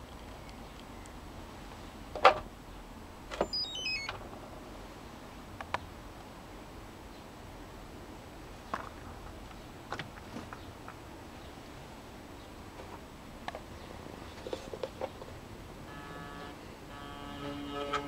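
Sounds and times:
descending electronic beeps: 0:03.4 - 0:04.1.

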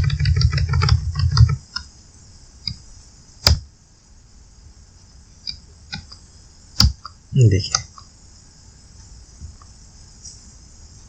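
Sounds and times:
computer keys or mouse clicking: 0:00.0 - 0:01.9.

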